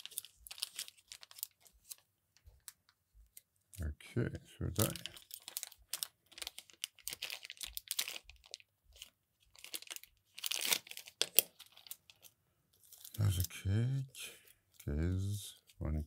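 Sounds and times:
plastic bags crinkling: 0:00.0 - 0:02.0, 0:04.8 - 0:13.6.

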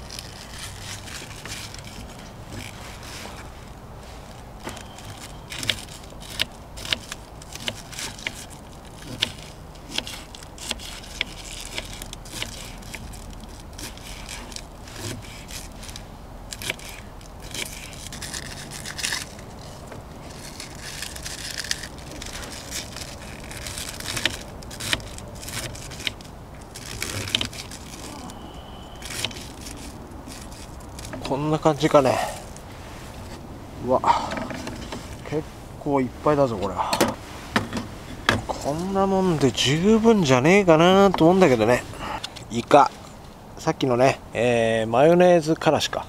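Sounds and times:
knife shredding cabbage: 0:00.0 - 0:04.2, 0:04.8 - 0:32.6.

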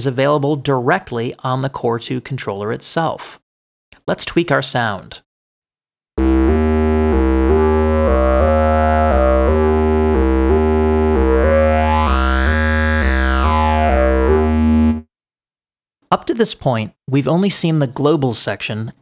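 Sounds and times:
held synth bass: 0:06.2 - 0:15.1
synth lead short notes: 0:06.2 - 0:15.1.

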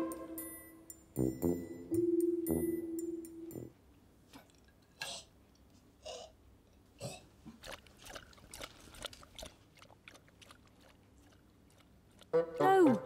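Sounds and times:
person chewing food: 0:07.0 - 0:12.3.

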